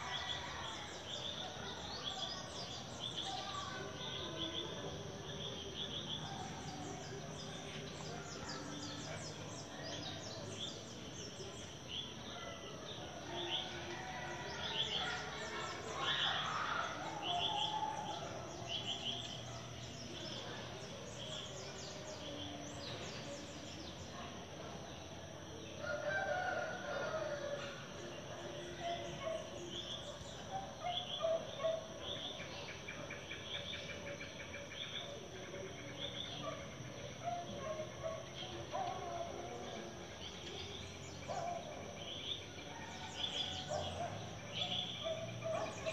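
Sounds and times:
rooster crowing: 0:25.8 - 0:27.7.

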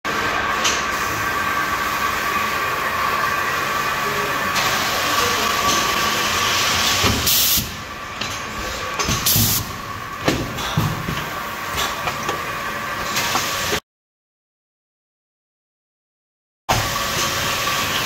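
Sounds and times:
packaging machine whining hum: 0:00.1 - 0:13.8, 0:16.7 - 0:18.0.

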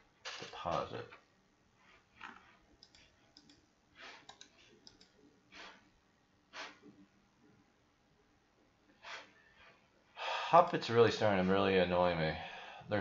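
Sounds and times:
faint computer mouse clicks: 0:02.8 - 0:05.2
soft breaths out: 0:09.0 - 0:10.6.

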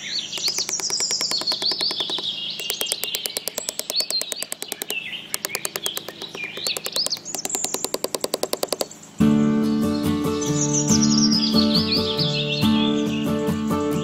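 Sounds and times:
birds chirping: 0:00.0 - 0:09.2
fast clicking trill: 0:00.4 - 0:09.0.

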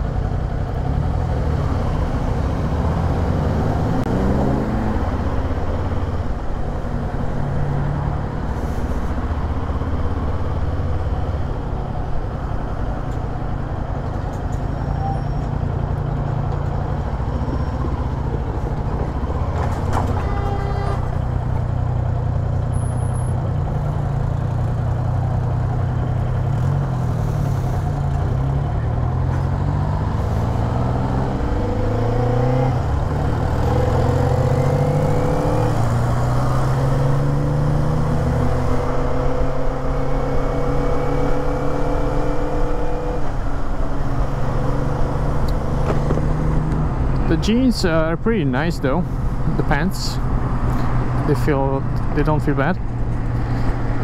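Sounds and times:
motorcycle engine accelerating: 0:24.4 - 0:47.3.

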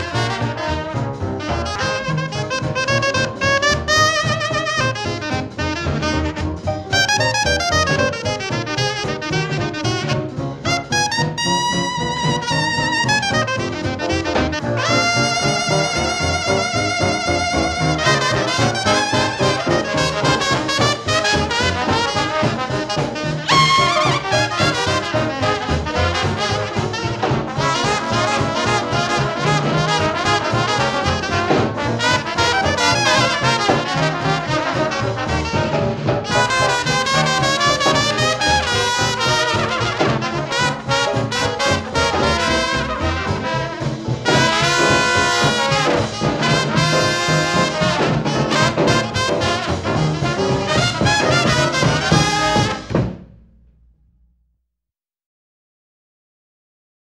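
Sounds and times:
brass jazz band: 0:00.0 - 0:54.0.

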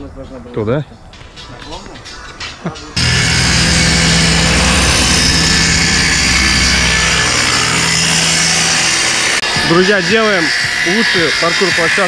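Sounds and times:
circular saw cutting plywood: 0:03.0 - 0:12.0.

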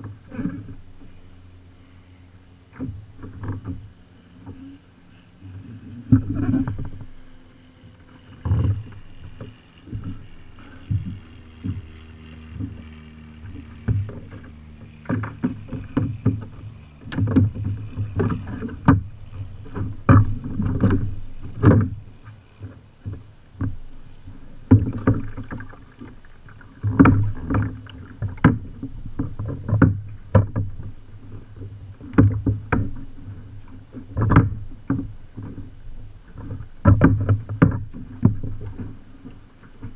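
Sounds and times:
faint steady hum: 0:00.0 - 0:39.9
knocks on plastic kayak hull: 0:36.8 - 0:38.8.

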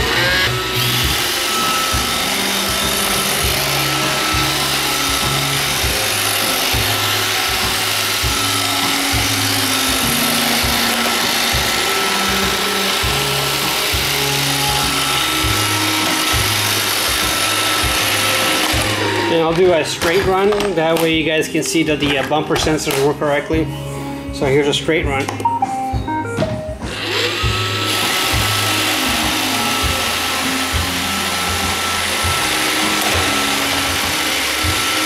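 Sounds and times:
robot vacuum whirring: 0:00.0 - 0:21.0, 0:26.9 - 0:35.0
background music with bass: 0:00.0 - 0:35.0.

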